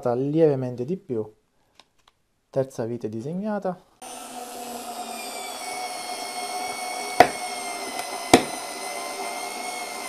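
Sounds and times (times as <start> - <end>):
cordless screwdriver whining: 4.0 - 10.0.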